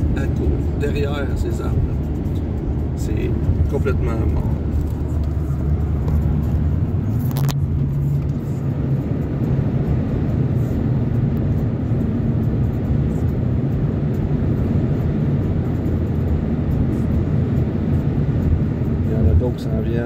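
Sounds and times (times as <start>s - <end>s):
road noise: 0.0s - 20.0s
van engine hum: 0.0s - 20.0s.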